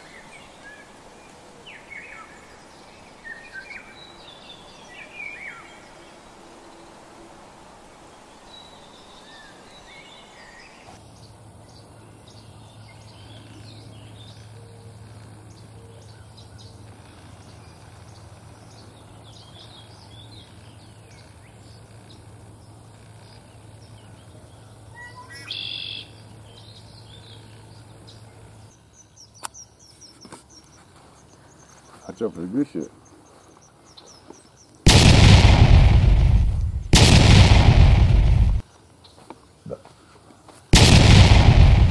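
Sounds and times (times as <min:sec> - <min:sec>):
steady low hum: 0:34.9 - 0:38.6, 0:40.8 - 0:41.9.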